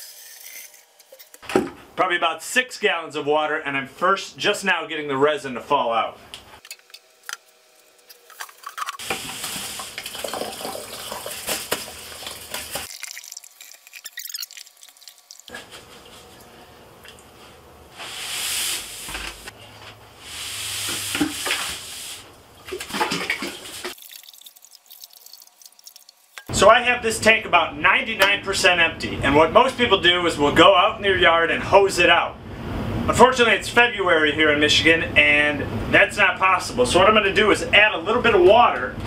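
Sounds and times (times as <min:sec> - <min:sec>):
water and beads pouring into bucket: 0:09.0 - 0:15.5, 0:23.7 - 0:26.4.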